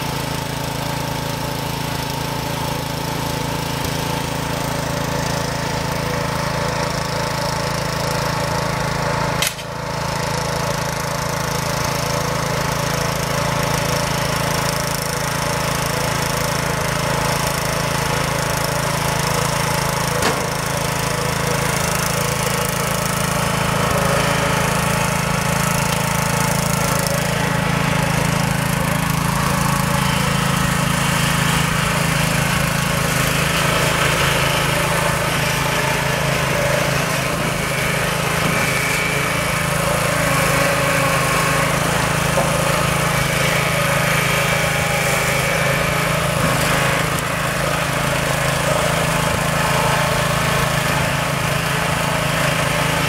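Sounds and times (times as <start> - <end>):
small gasoline engine running: 0.0 - 53.0
sharp click: 9.4 - 9.7.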